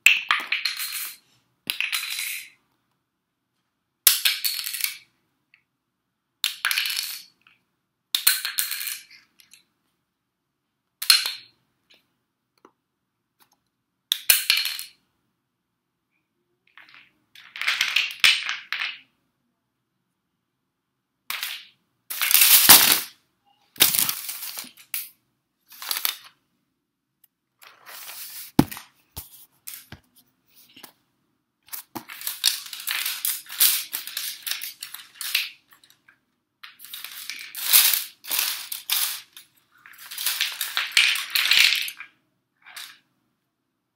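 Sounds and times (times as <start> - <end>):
sticks rattling and scraping: 23.8 - 25.1, 27.6 - 31.0, 31.7 - 36.0
wooden sticks clattering onto floor: 27.6 - 30.1, 31.7 - 42.1.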